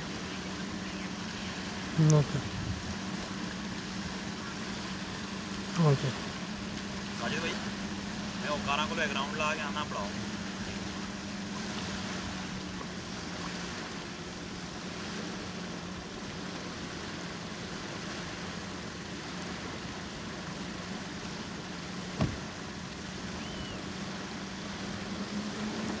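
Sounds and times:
car engine idling: 0.0 - 26.0
car door shutting: 22.1 - 22.6.

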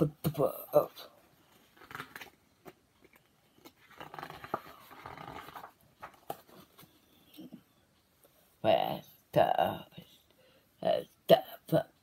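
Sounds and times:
paper pages rustling: 1.4 - 7.0.

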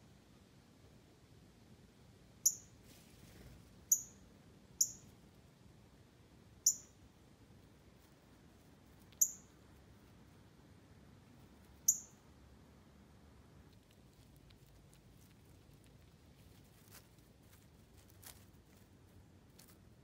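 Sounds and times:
high-pitched animal chip calls: 2.4 - 2.7, 4.8 - 5.1, 6.6 - 7.0, 9.1 - 9.6, 11.8 - 12.2.

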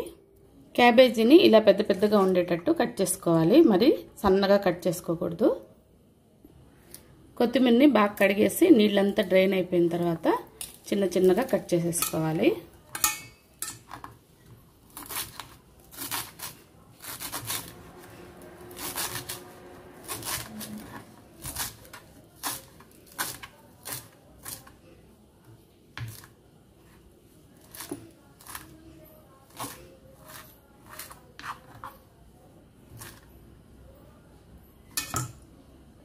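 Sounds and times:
knife slicing herbs on board: 14.9 - 18.0, 18.8 - 24.8, 29.5 - 32.0.

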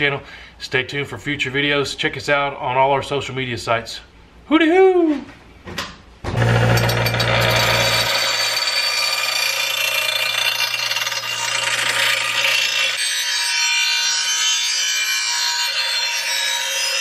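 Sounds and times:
motor low hum: 6.2 - 13.0
bench grinder grinding metal: 6.3 - 17.0.

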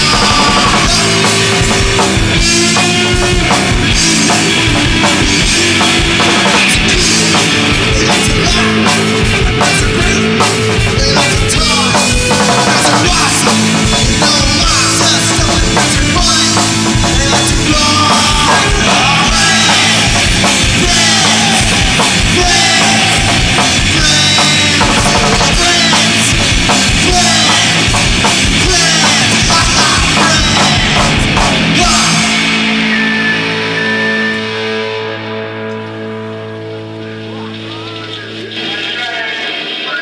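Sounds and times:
fast drums: 0.0 - 35.2
distorted electric guitars: 0.0 - 40.0.

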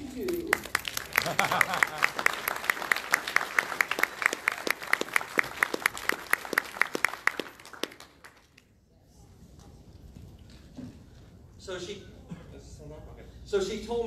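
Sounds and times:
congregation applauding: 0.0 - 8.7
close person clapping rapidly: 0.5 - 8.4.

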